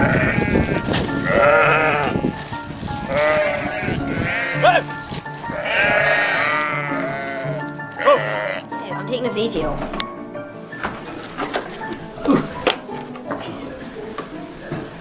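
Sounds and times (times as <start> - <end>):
sheep bleating: 0.0 - 2.2, 3.0 - 8.7
background music: 0.0 - 15.0.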